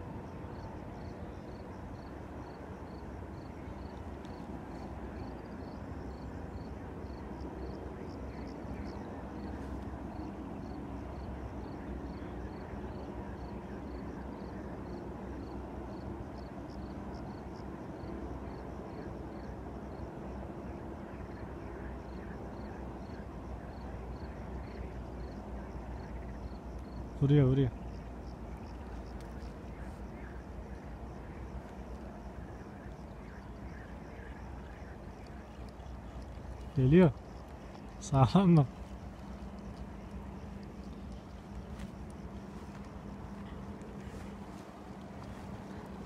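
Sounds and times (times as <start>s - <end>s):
steady low rumble: 20.2s - 46.0s.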